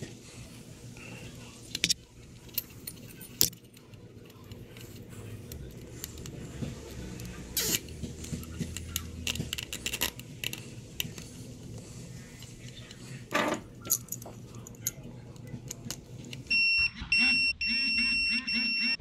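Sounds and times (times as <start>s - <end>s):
faint low hum: 0.0s - 18.9s
hoses tapping and rattling: 1.7s - 16.5s
zip tie ratchet clicking: 6.0s - 11.2s.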